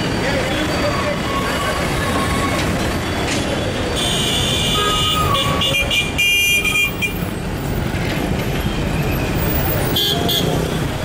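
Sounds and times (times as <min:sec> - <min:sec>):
traffic rumble: 0:00.0 - 0:11.0
vehicle horn honking: 0:04.0 - 0:07.2.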